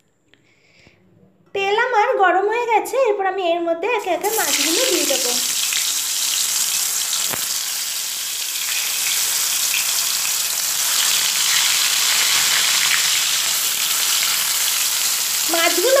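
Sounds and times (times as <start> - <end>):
fish sizzling in hot oil: 4.2 - 16.0.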